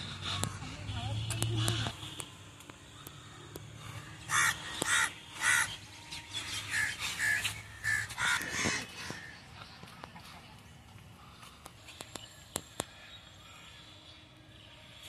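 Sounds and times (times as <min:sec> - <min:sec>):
crow cawing: 0:03.0 - 0:05.8, 0:06.7 - 0:09.4.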